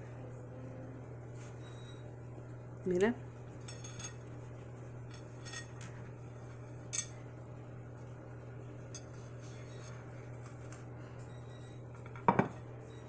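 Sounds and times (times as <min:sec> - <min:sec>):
steady low hum: 0:00.0 - 0:13.0
plate clinking: 0:12.1 - 0:12.6.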